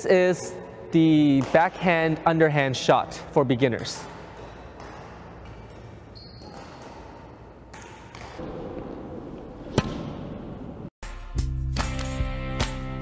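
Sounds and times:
gym hum: 0.0s - 10.9s
racket striking shuttlecock: 3.8s - 9.0s, 9.6s - 10.6s.

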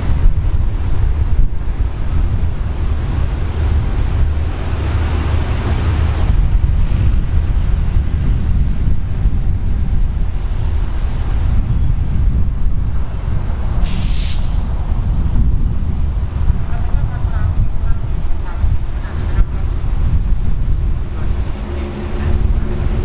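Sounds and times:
locomotive engine rumble: 0.0s - 23.0s
loud hiss: 13.8s - 15.0s.

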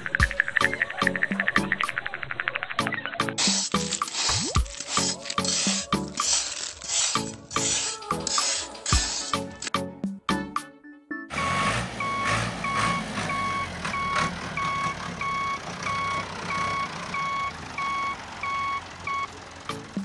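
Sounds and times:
reversing alarm beeping: 11.3s - 19.3s
low engine rumble: 11.4s - 20.0s.

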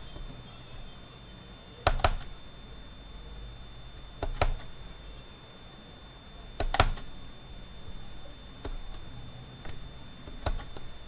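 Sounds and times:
faint high-pitched whine: 0.0s - 11.0s
computer mouse clicking: 1.8s - 2.3s, 4.2s - 4.7s, 6.6s - 7.2s, 8.6s - 10.9s.

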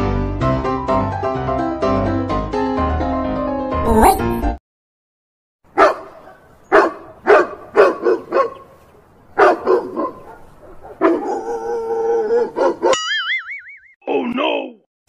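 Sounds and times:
dog barking: 5.7s - 8.8s, 9.4s - 13.0s.

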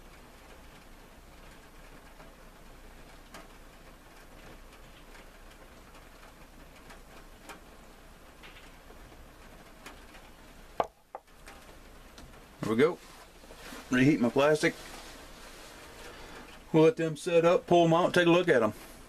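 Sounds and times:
faint room hiss: 0.0s - 19.0s
light ticks: 3.0s - 9.1s
glass cup knocking on wooden table: 10.8s - 11.3s.

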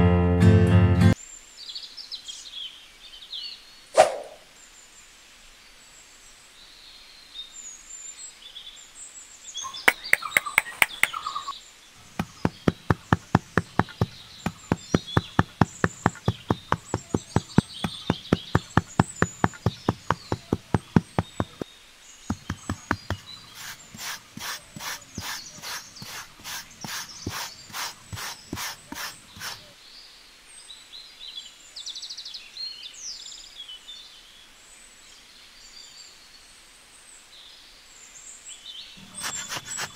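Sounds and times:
birds chirping: 7.5s - 29.9s, 38.7s - 39.9s
metal trowel tapping damp sand: 12.1s - 21.6s, 22.3s - 29.6s, 39.0s - 39.9s.

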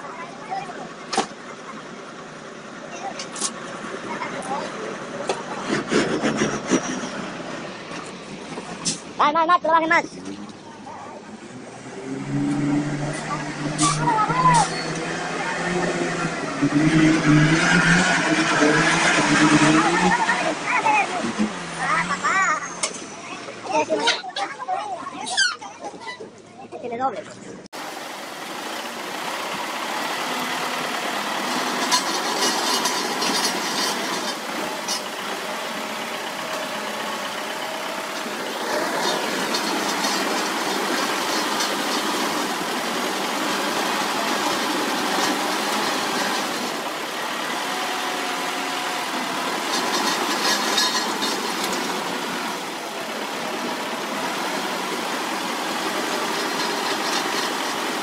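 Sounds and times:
bulldozer diesel engine running: 0.0s - 9.2s, 27.8s - 58.0s
rattling: 28.9s - 52.6s.

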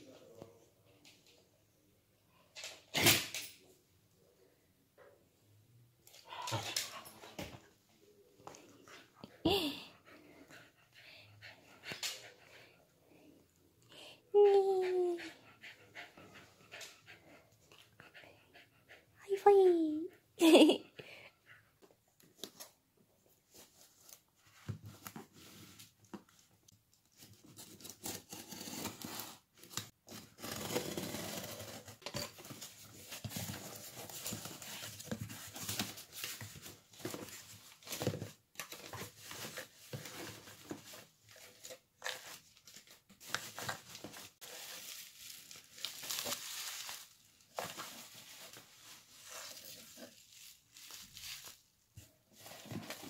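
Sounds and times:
cardboard tearing: 27.5s - 34.6s
bubble wrap crinkling: 41.5s - 53.0s.

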